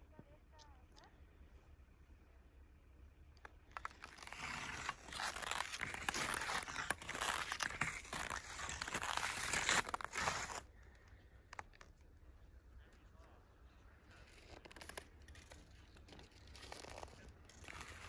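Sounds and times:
footsteps crunching on snow: 0:03.8 - 0:10.6.

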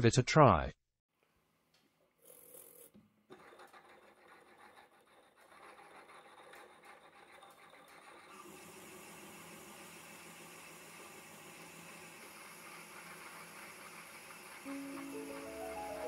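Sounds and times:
milling machine cutting steel: 0:08.3 - 0:16.0.

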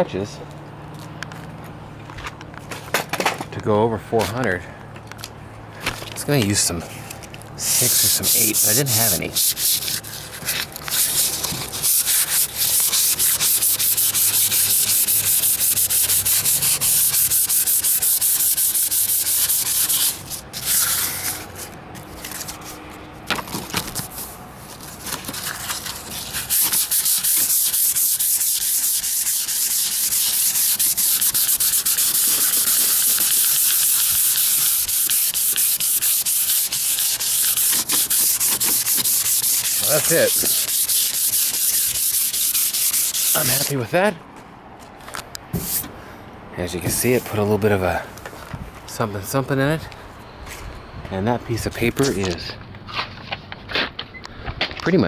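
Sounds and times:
sandpaper rubbing on car hood: 0:07.6 - 0:21.7, 0:24.0 - 0:43.9, 0:45.6 - 0:45.9.

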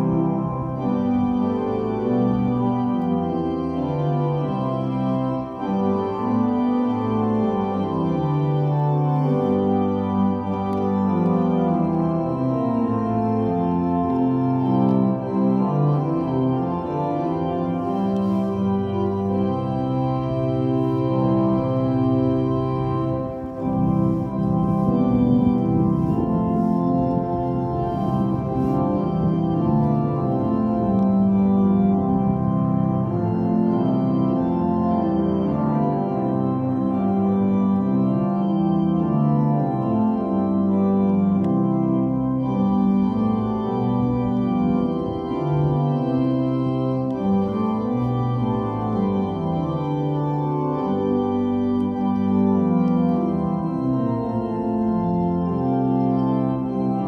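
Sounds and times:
church organ chords: 0:00.0 - 0:57.0.

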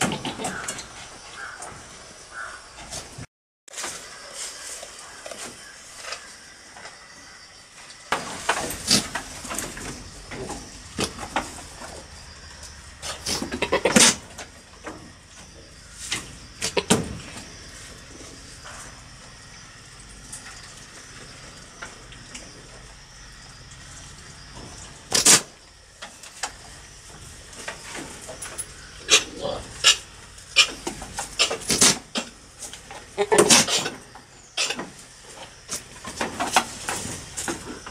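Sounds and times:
goat sputtering call: 0:13.1 - 0:14.3, 0:29.0 - 0:32.2, 0:33.1 - 0:34.0.

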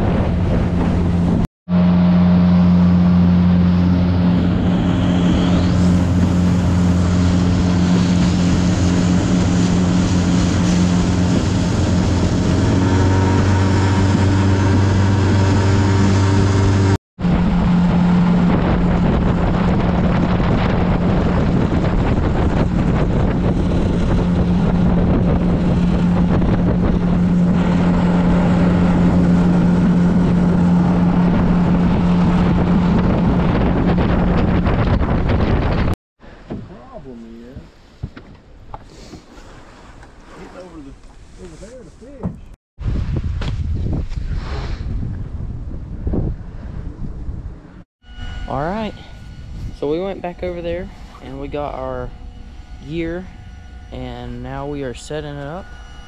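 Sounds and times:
small boat motor running: 0:00.0 - 0:36.5, 0:48.0 - 0:56.0
wind noise on microphone: 0:00.0 - 0:38.9, 0:42.0 - 0:56.0.

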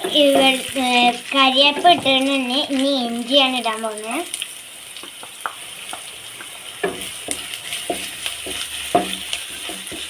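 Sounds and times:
spatula knocking and scraping pan: 0:00.0 - 0:02.5, 0:05.0 - 0:10.0
oil sizzling in a pan: 0:00.0 - 0:10.0.

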